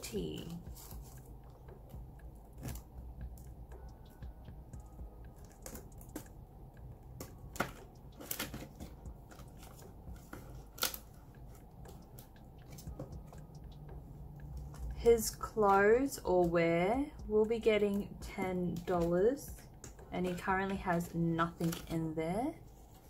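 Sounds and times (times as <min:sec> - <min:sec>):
plastic pages rustling: 0:07.6 - 0:13.0.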